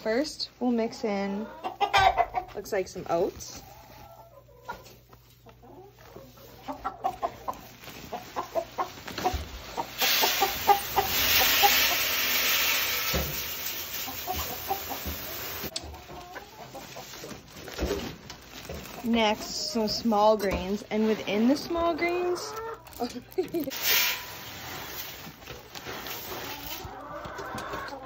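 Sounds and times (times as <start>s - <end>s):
chickens clucking: 0.0s - 28.0s
grain pouring into barrel: 10.0s - 15.6s.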